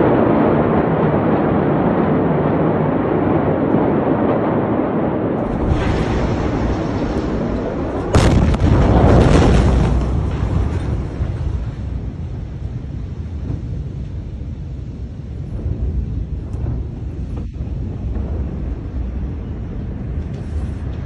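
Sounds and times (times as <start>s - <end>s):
loud rumble: 0.0s - 21.0s
explosion bang: 5.4s - 13.9s.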